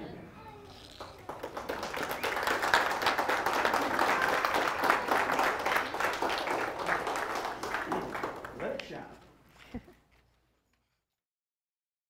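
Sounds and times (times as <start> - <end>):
audience clapping: 0.9 - 9.0.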